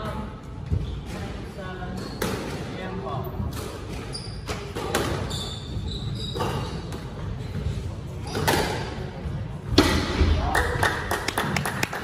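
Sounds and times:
squash ball struck by rackets: 9.7s - 10.4s.

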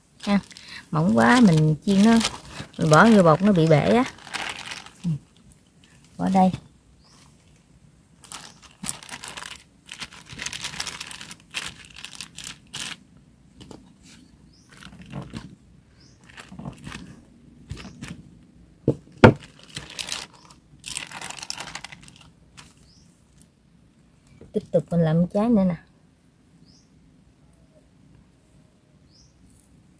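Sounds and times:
plastic sheet crinkling: 0.1s - 6.6s, 8.2s - 13.0s, 14.6s - 15.6s, 16.2s - 18.3s, 19.1s - 22.9s.

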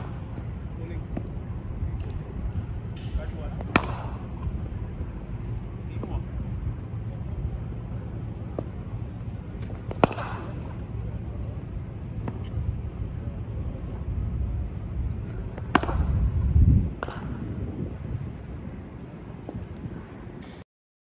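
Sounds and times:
low wind rumble on microphone: 0.0s - 20.6s
cricket bat striking ball: 2.9s - 4.5s, 9.6s - 10.8s, 15.5s - 16.2s.

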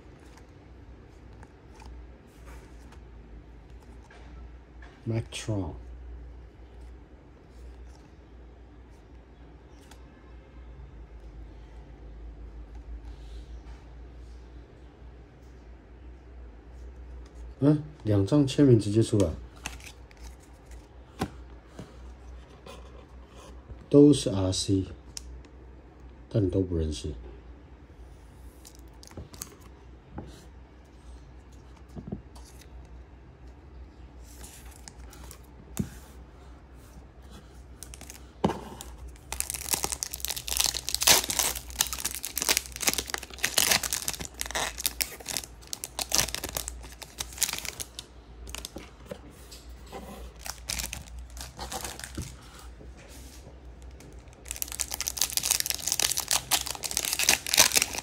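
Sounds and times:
wrappers torn and crinkled: 39.1s - 48.7s, 50.4s - 52.3s, 54.2s - 58.0s.

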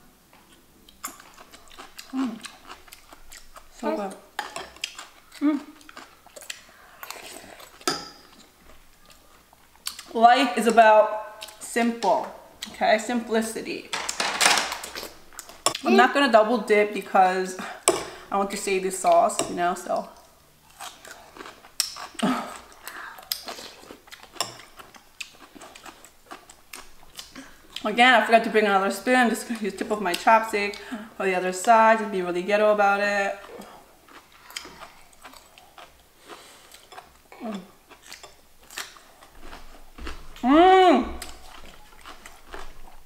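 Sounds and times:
chewing: 0.3s - 10.2s, 20.1s - 27.8s, 33.4s - 40.5s, 41.1s - 43.0s
crunching pickle: 20.6s - 27.8s
person humming with pleasure: 40.4s - 41.2s.

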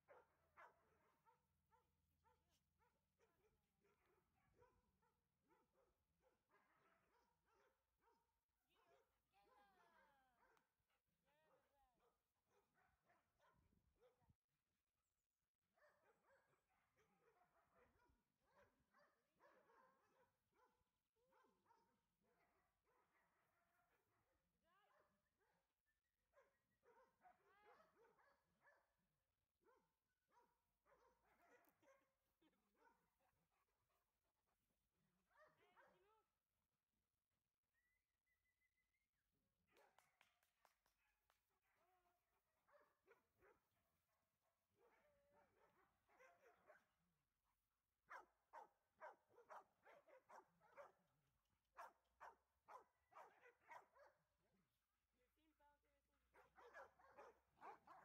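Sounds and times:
dogs barking and yipping: 48.1s - 50.9s, 56.6s - 58.0s.

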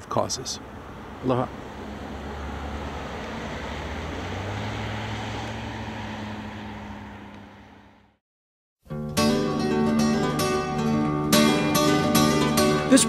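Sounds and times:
road noise: 0.0s - 8.2s, 9.0s - 13.0s
vehicle engine humming: 0.0s - 8.2s.

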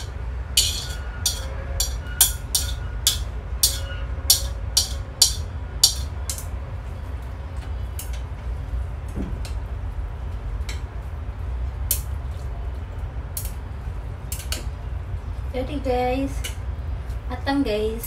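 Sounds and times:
chopsticks clicking and tapping bowl: 0.0s - 6.5s
steady low rumble: 0.0s - 18.0s.

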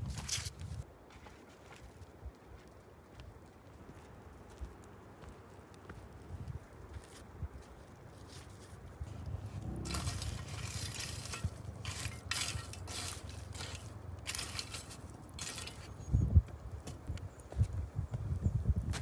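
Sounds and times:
shovel scraping through coals: 0.0s - 0.8s, 8.3s - 16.2s
charcoal clinking and rustling: 9.2s - 16.2s.

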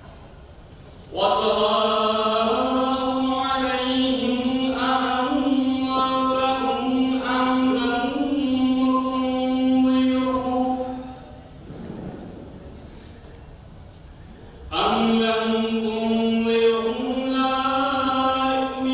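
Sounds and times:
man chanting into microphone: 1.1s - 11.5s, 14.7s - 18.9s.

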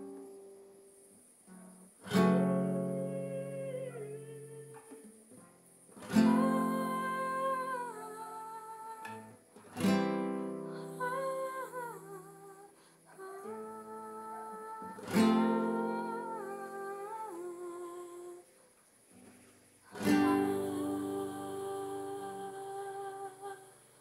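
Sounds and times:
person humming a melody: 2.5s - 5.1s, 6.1s - 9.3s, 10.7s - 18.5s, 19.9s - 24.0s
acoustic guitar chords ringing: 14.3s - 17.3s, 20.0s - 23.5s.

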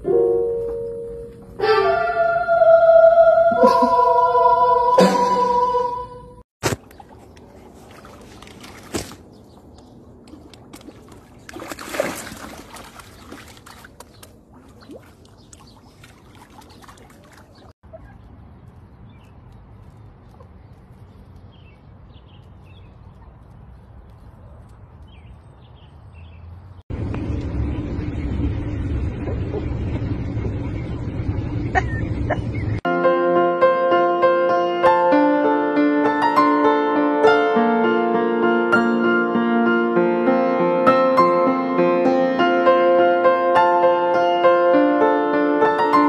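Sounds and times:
sharp water splashes: 6.6s - 17.8s
water lapping against rocks: 6.6s - 17.8s
car interior drone: 26.9s - 32.7s.

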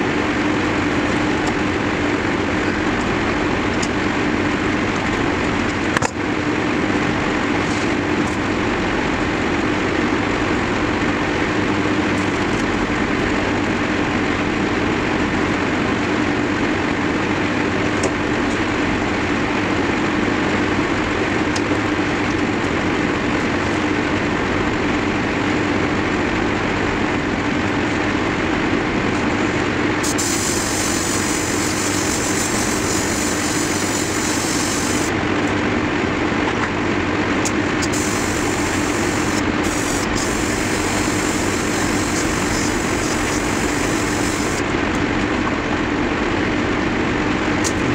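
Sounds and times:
air compressor humming: 29.0s - 35.6s, 37.3s - 45.0s
airbrush air hiss: 30.0s - 35.1s, 37.8s - 44.6s.

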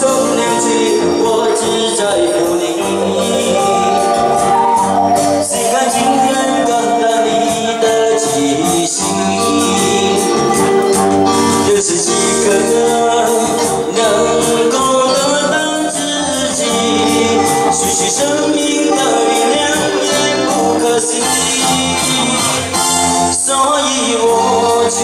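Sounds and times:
electric guitars: 0.0s - 25.0s
keyboard: 0.0s - 25.0s
man singing into microphone: 0.0s - 25.0s.

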